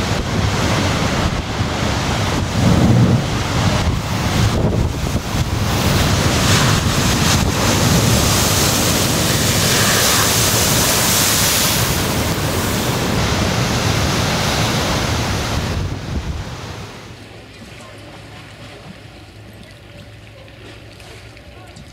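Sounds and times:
wind buffeting microphone: 0.0s - 17.0s
waves breaking on rocks: 0.0s - 17.2s.

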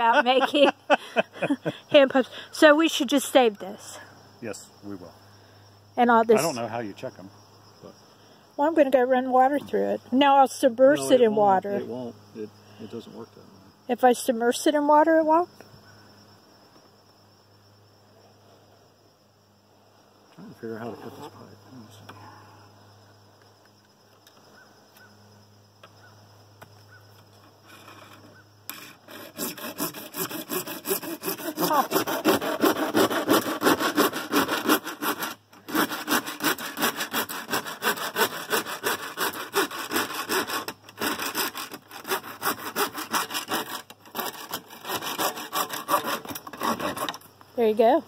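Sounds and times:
hand saw cutting plastic pipe: 27.7s - 47.2s.

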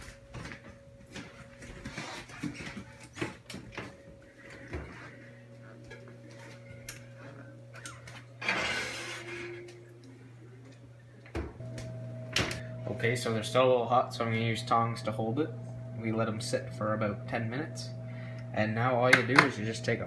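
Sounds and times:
steady low hum: 0.0s - 20.0s
baking sheet scraping on wire rack: 8.4s - 9.6s.

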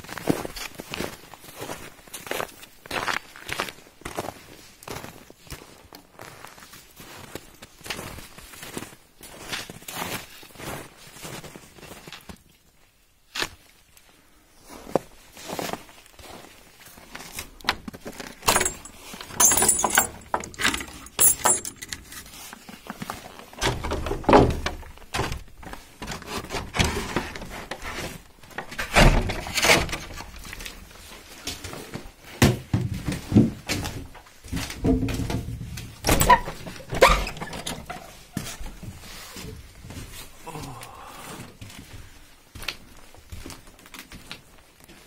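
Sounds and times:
metal chain rattling on door: 18.4s - 22.2s, 34.9s - 38.2s
footsteps on wooden boards: 22.9s - 36.9s
wooden door knocks and clunks: 23.6s - 25.4s, 28.7s - 30.0s, 32.4s - 34.1s, 34.7s - 38.0s.

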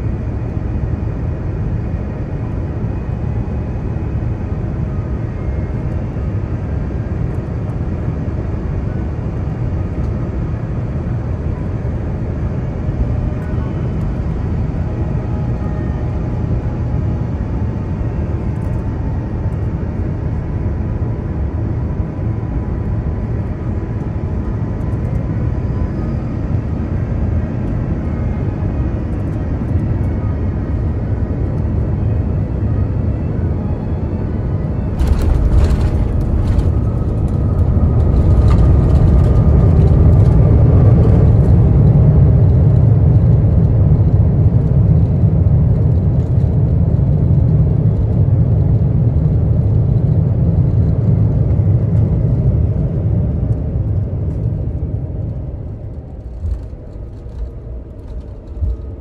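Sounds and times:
jet engine rumble: 0.0s - 59.0s
whining fan tones: 0.0s - 59.0s
wheels touching down with rattling: 35.0s - 39.4s.

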